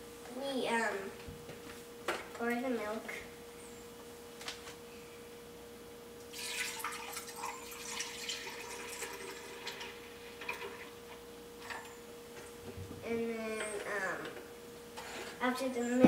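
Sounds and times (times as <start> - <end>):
faint steady hum: 0.0 - 16.0
liquid pouring into blender jar: 6.3 - 10.9.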